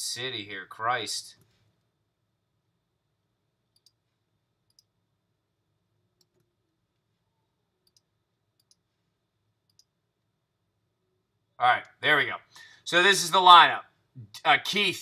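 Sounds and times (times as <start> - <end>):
computer mouse clicks: 3.7 - 4.0, 4.7 - 4.9, 7.8 - 8.9, 9.6 - 9.9.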